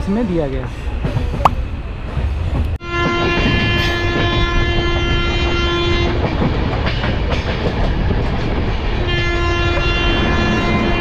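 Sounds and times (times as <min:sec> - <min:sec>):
train rumble and wheel clatter: 0:00.0 - 0:11.0
train horn steady tone: 0:02.8 - 0:06.2, 0:09.0 - 0:11.0.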